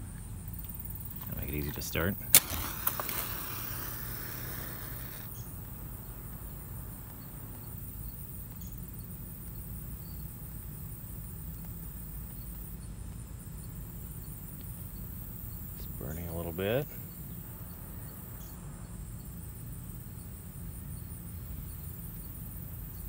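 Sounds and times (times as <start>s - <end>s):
insects chirping faintly: 0.0s - 23.0s
low background noise: 0.0s - 23.0s
match hissing as it burns: 1.2s - 8.6s.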